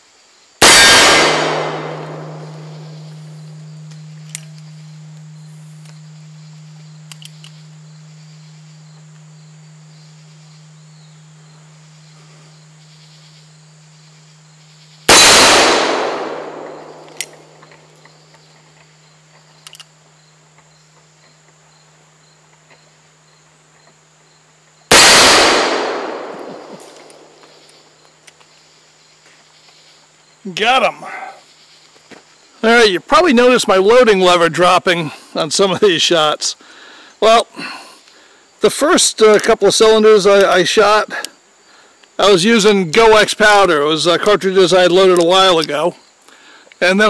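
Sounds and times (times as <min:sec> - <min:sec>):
revolver gunshots: 0:00.6 - 0:05.0, 0:15.0 - 0:17.6, 0:24.9 - 0:27.4
metallic clang of steel targets: 0:00.6 - 0:07.8.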